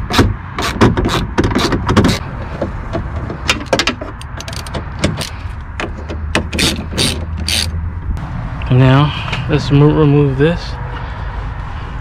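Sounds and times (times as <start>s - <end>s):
ratchet wrench clicking: 6.6s - 7.8s.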